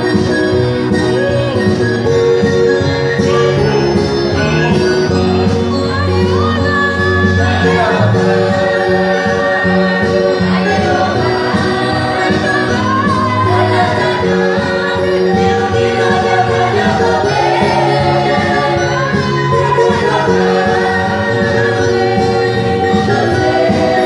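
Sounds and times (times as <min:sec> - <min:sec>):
women singing in harmony: 0:05.5 - 0:24.0.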